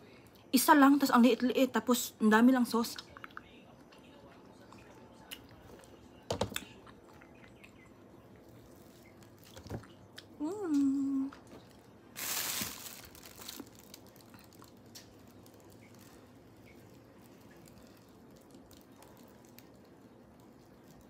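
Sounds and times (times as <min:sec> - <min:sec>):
sticky fruit pulled apart: 0:11.6 - 0:21.0.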